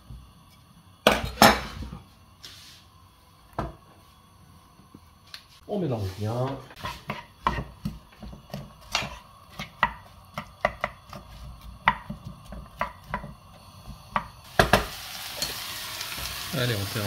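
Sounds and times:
food sizzling in a pan: 0:00.0 - 0:17.0
wooden spoon scraping a pan: 0:05.5 - 0:10.2.

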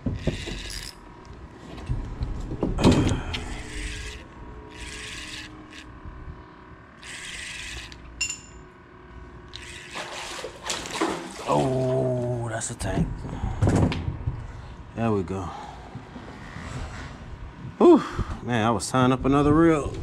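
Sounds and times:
spinning reel whirring: 0:00.0 - 0:01.4, 0:03.0 - 0:08.7, 0:09.4 - 0:11.6.

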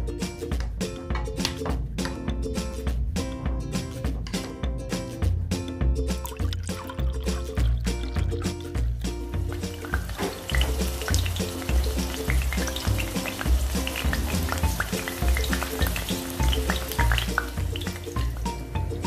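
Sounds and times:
background music with bass line: 0:00.0 - 0:19.0
food sizzling in hot oil: 0:06.6 - 0:19.0.

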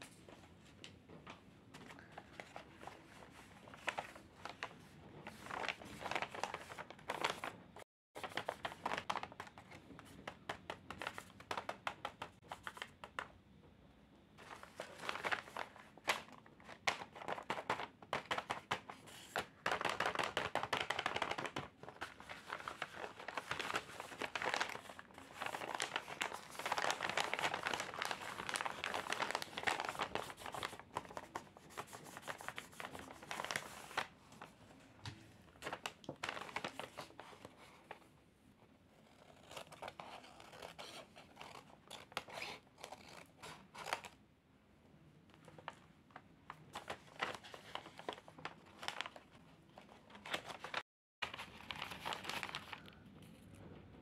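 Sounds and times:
paper bag rustling and crinkling: 0:01.7 - 0:12.9, 0:14.4 - 0:38.1, 0:46.5 - 0:53.4.

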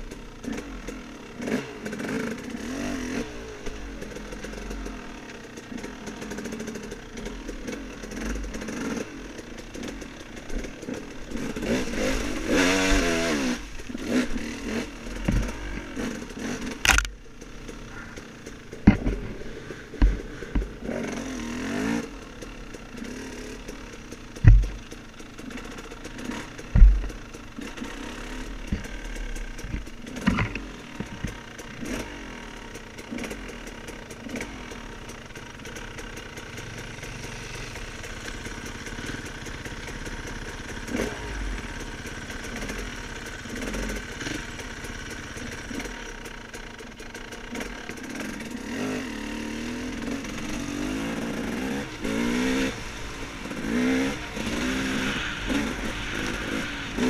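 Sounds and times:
dirt bike engine revving: 0:00.0 - 0:57.0
bike knocking over rough ground: 0:15.2 - 0:16.0, 0:17.9 - 0:20.8, 0:24.4 - 0:25.0, 0:26.8 - 0:27.3
heavy thump: 0:18.8 - 0:20.7, 0:24.4 - 0:24.8, 0:26.8 - 0:27.1.

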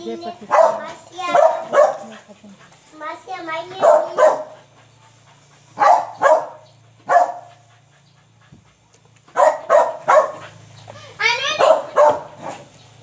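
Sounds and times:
dog barking: 0:00.5 - 0:02.3, 0:03.7 - 0:04.6, 0:05.8 - 0:07.6, 0:09.3 - 0:10.6, 0:11.5 - 0:12.7.

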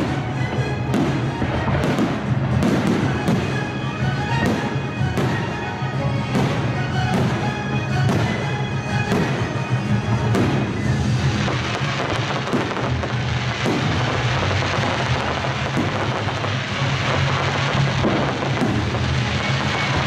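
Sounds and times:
orchestral film music: 0:00.0 - 0:20.0
firework shells bursting: 0:06.3 - 0:20.0.

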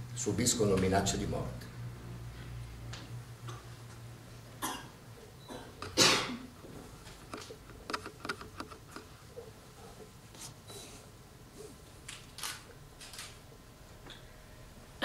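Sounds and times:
person coughing: 0:04.6 - 0:06.5.

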